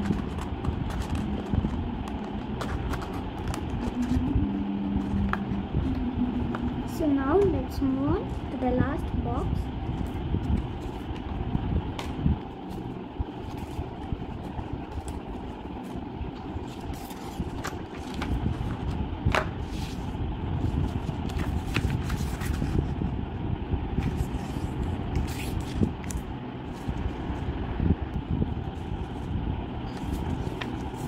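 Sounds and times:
paper rustling and scraping: 0.0s - 4.2s, 12.7s - 23.0s, 24.0s - 27.2s, 29.9s - 31.0s
low background rumble: 0.0s - 31.0s.

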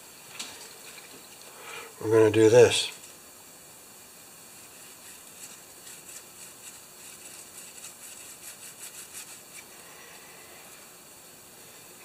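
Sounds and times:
sandpaper scratching metal part: 4.6s - 9.6s.

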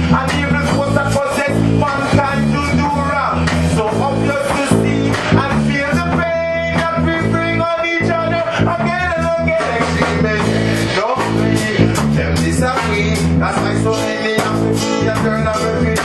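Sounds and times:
man singing: 0.0s - 16.0s
reggae band playing: 0.0s - 16.0s.

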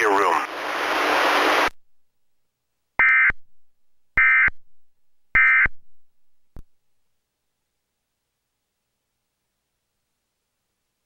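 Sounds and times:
digital data tone bursts: 3.0s - 3.4s, 4.2s - 4.6s, 5.4s - 5.8s.

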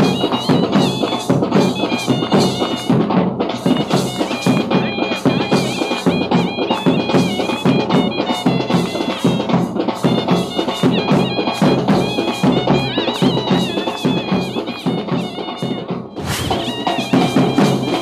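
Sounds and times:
fast dense drumming: 0.0s - 18.0s
high ornamented melody: 16.4s - 18.0s.

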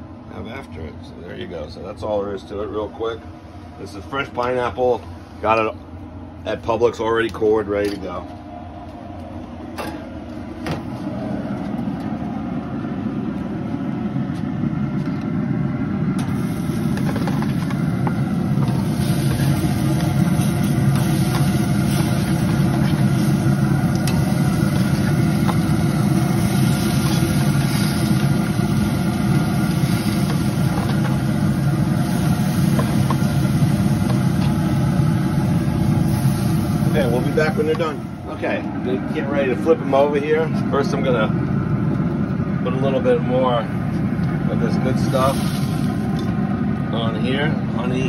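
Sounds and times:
smoker fan rushing: 0.0s - 48.0s
pineapple slices sizzling: 16.3s - 38.0s.

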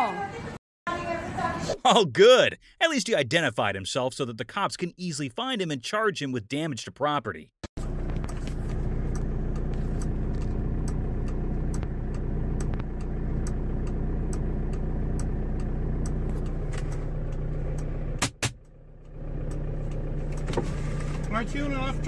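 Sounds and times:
car engine idling: 7.8s - 22.0s
light ticks: 8.1s - 17.9s, 18.6s - 21.4s
sharp clicks: 8.1s - 20.5s.

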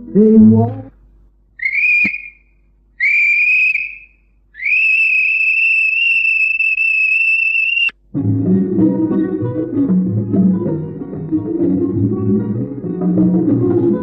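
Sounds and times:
high whistled tones: 1.6s - 8.0s.

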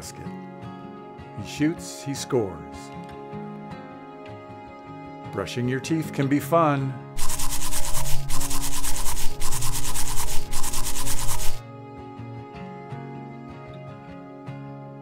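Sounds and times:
soft guitar music: 0.0s - 7.1s, 11.6s - 15.0s
toothbrush scrubbing: 7.2s - 11.6s.

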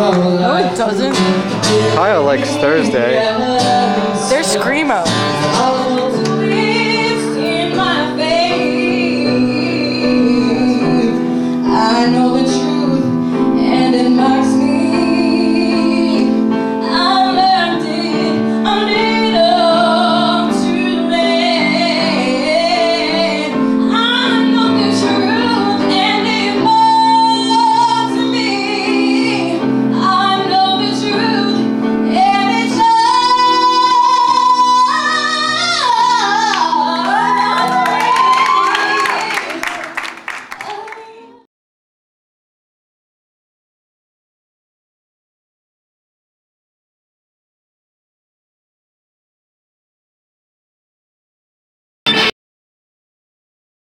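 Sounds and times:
sustained instrumental chords: 0.0s - 18.6s
woman singing: 0.0s - 41.5s.

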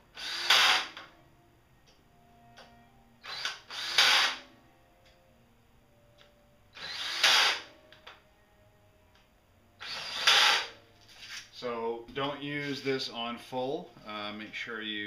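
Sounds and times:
cordless drill driving screws: 0.2s - 1.0s, 3.2s - 4.4s, 6.8s - 7.7s, 9.8s - 10.7s.

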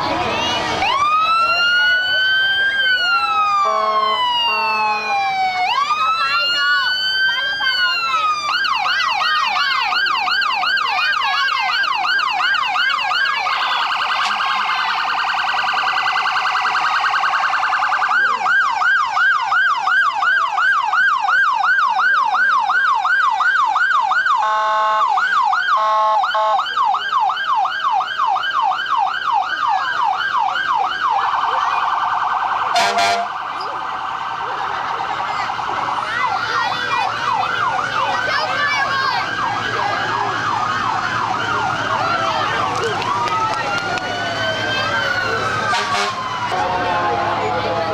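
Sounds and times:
emergency vehicle sirens: 0.0s - 47.9s
short horn blasts: 32.8s - 33.3s, 45.7s - 46.2s.

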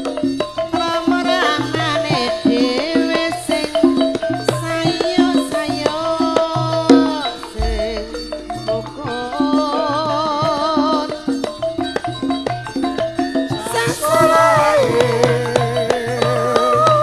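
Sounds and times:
gamelan dance music: 0.0s - 17.0s
struck metallophone notes: 0.0s - 17.0s
deep low gong stroke: 7.6s - 9.5s
kendang drum strokes: 7.6s - 10.4s.

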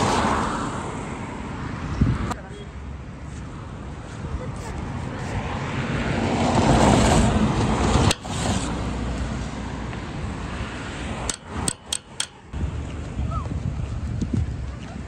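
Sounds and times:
car passing on wet road: 0.0s - 1.3s, 5.4s - 11.2s.

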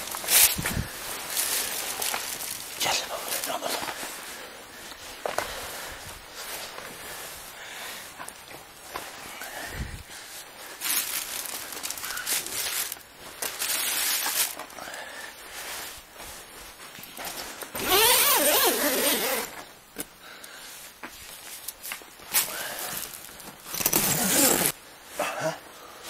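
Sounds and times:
fabric rustling: 0.0s - 19.8s, 20.6s - 25.1s
tent zipper being pulled: 17.8s - 19.6s, 23.7s - 24.8s.

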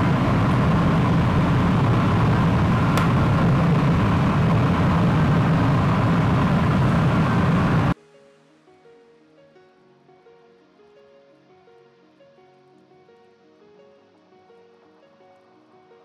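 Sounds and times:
furnace burning with rushing roar: 0.0s - 8.0s.

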